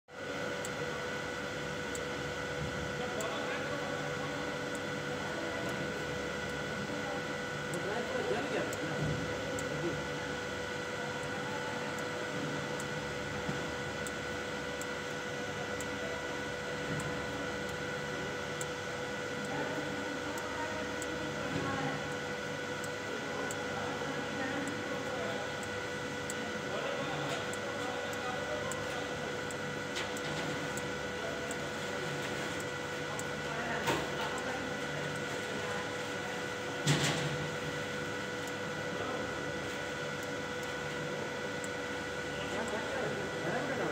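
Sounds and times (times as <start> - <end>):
electrical hum and hiss: 0.1 - 43.9.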